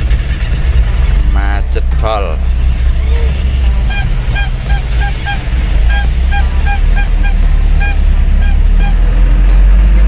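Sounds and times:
truck engine idling: 0.0s - 10.0s
short high honks: 3.6s - 9.3s.

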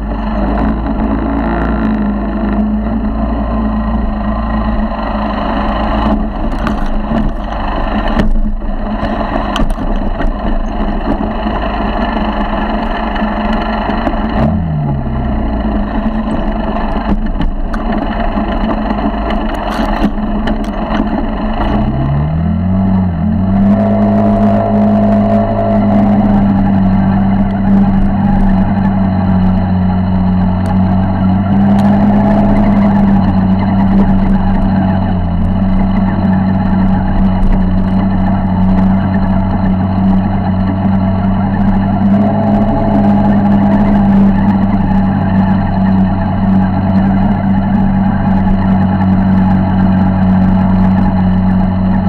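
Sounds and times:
motorized bicycle engine running: 0.0s - 52.0s
rushing noise: 0.0s - 52.0s.

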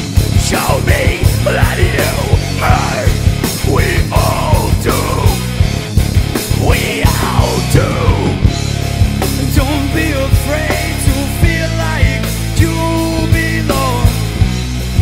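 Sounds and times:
bass guitar: 0.0s - 15.0s
drum kit beat: 0.0s - 15.0s
electric guitar: 0.0s - 15.0s.

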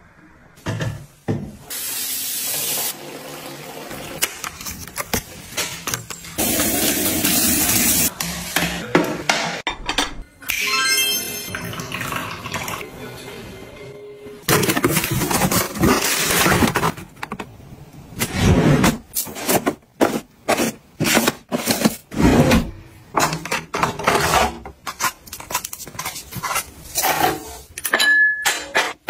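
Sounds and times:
packaging rustling and scraping: 14.5s - 17.5s, 18.7s - 22.2s, 23.5s - 27.7s.

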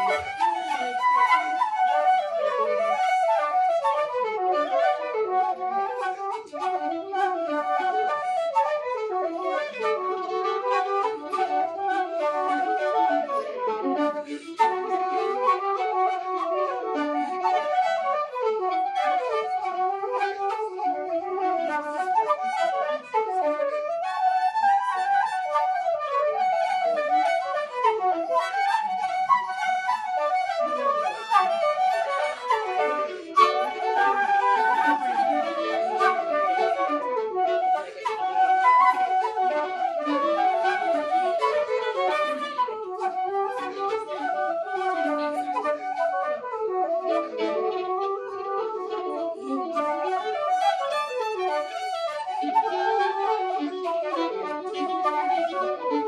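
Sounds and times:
fiddle playing: 0.0s - 56.0s
flutes playing: 0.0s - 56.0s.

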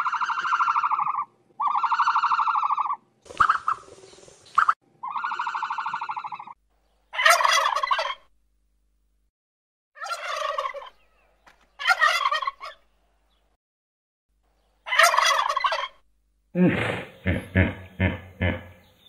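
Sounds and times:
animal calling: 0.0s - 3.8s.

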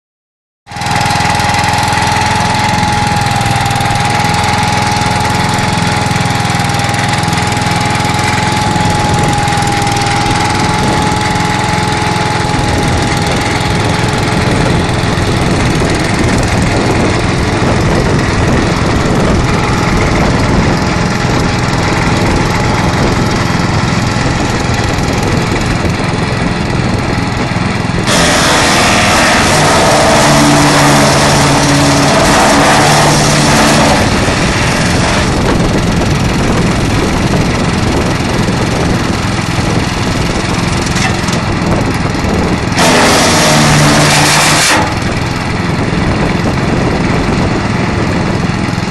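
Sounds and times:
wood chipper running: 0.7s - 48.9s
high whine: 0.9s - 48.5s.

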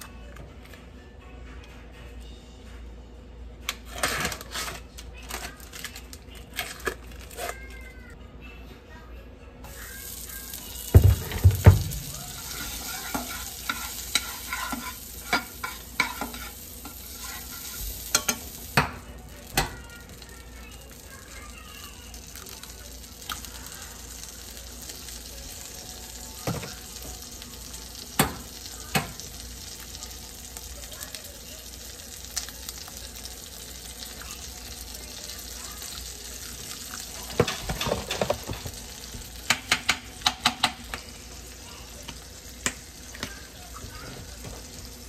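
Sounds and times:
eggs sizzling in a pan: 9.7s - 45.0s.

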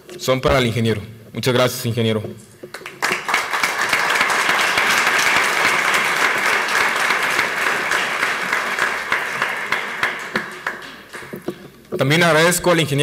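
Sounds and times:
audience applauding: 2.7s - 11.7s.

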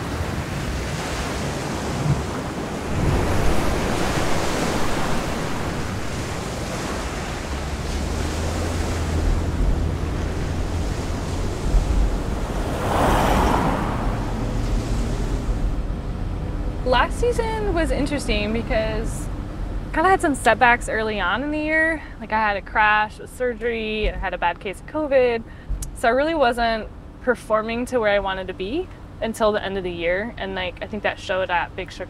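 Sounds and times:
surf breaking over rocks: 1.6s - 15.8s.

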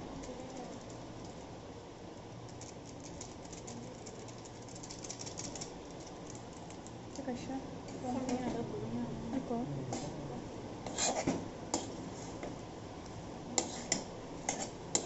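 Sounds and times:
spatula scraping metal pan: 13.6s - 15.0s.

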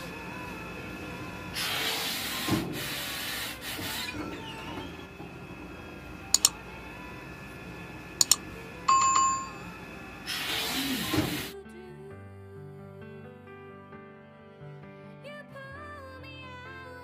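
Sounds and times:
steam hissing: 1.5s - 4.3s, 10.3s - 11.5s
sharp clicks: 6.4s - 6.6s, 8.2s - 8.4s
short ringing chime: 8.2s - 9.8s.

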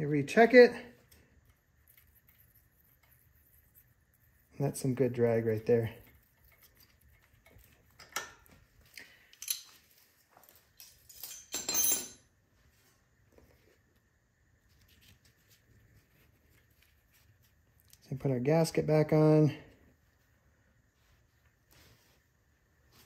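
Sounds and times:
metal tools clinking and rattling: 9.3s - 12.3s.

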